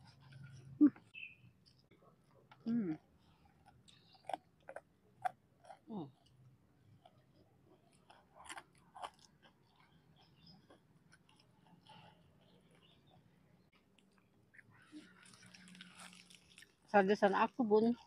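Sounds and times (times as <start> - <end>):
crunchy chewing of fried food: 0.0 - 18.0.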